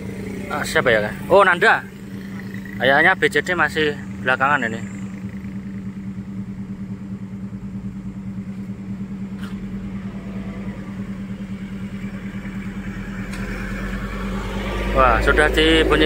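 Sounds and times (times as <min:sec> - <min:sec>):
deep bass rumble: 0:00.0 - 0:16.0
vehicle engines idling: 0:00.0 - 0:16.0.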